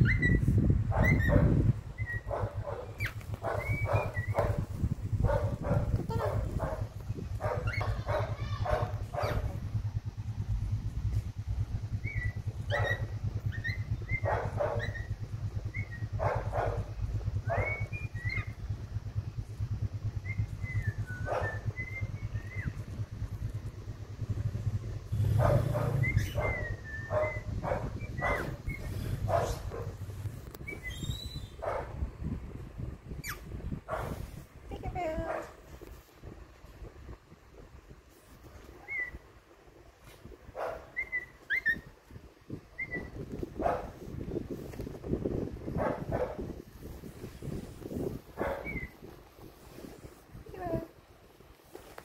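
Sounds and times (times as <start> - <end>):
cockatiel whistled chirps: 0.0 - 1.4, 3.0 - 4.4, 12.0 - 15.1, 17.6 - 18.6, 20.2 - 22.8, 25.9 - 28.9, 30.6 - 31.6, 38.8 - 39.2, 41.0 - 41.9, 42.8 - 43.2, 48.6 - 49.0
cockatiel bark-like calls: 0.0 - 4.7, 5.3 - 9.6, 12.0 - 18.6, 20.3 - 22.8, 25.3 - 29.9, 40.8 - 41.9, 48.4 - 49.0
steady low hum: 0.0 - 52.0.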